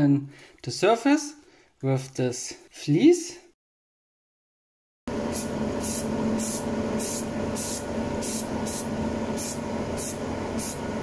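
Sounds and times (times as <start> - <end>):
extractor fan humming: 5.1 - 11.0
spray paint can hissing: 5.3 - 10.8.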